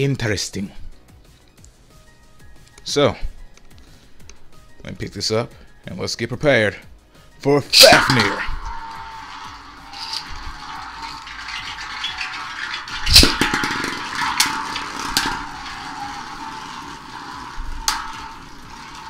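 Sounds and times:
spinning tops whirring on plastic: 7.8s - 19.0s.

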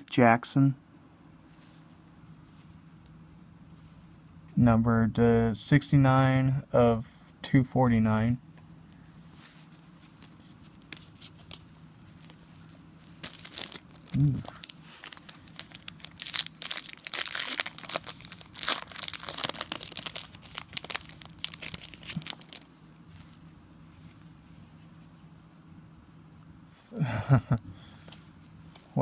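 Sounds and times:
foil wrapper tearing and crinkling: 13.1s - 22.7s.

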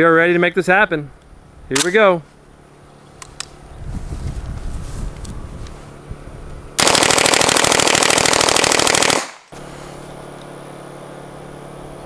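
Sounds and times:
submachine gun firing full auto: 6.8s - 9.5s.

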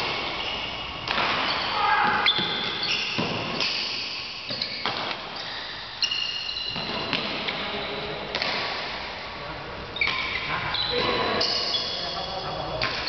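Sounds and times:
shoes squeaking on court floor: 0.0s - 3.7s, 4.4s - 7.7s, 9.9s - 13.0s
racket striking shuttlecock: 1.0s - 1.6s, 2.2s - 5.3s, 8.3s - 8.8s.

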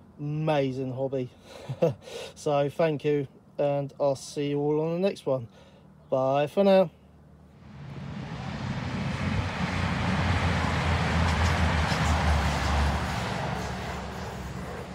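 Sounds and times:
passenger train passing: 7.6s - 14.9s.

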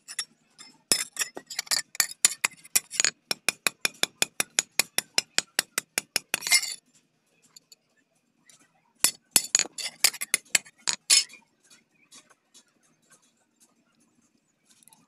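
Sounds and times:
hammer clinking on steel anvil: 0.1s - 6.8s, 9.1s - 11.3s.

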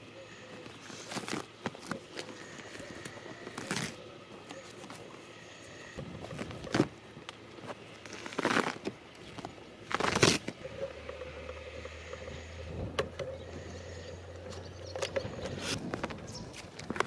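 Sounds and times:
low steady motor hum: 0.0s - 17.0s.

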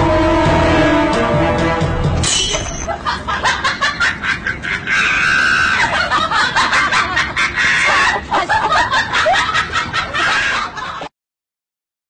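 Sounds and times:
people laughing: 2.9s - 11.1s.

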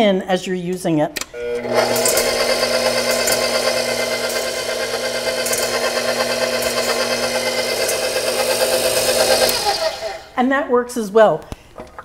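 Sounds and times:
stand mixer motor humming: 1.4s - 10.4s.

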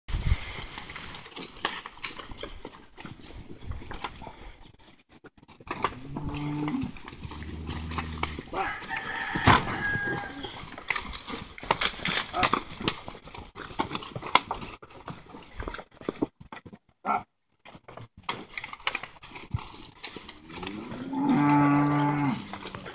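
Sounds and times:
cattle shuffling on straw: 0.1s - 16.2s, 18.5s - 22.9s
cow lowing: 5.8s - 8.9s, 20.4s - 22.9s
rooster crowing: 8.5s - 10.6s.

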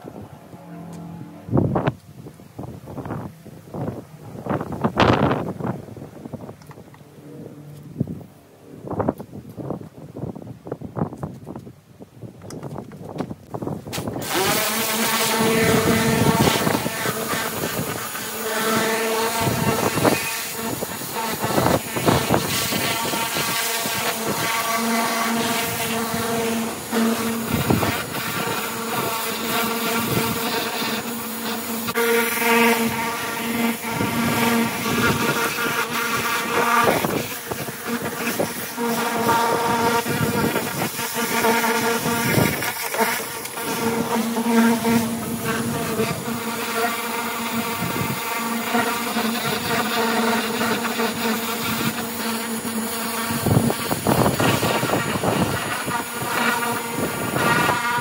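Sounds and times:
pressure washer pump drone: 0.0s - 9.3s, 13.8s - 58.0s
water jet spraying metal: 13.6s - 58.0s.

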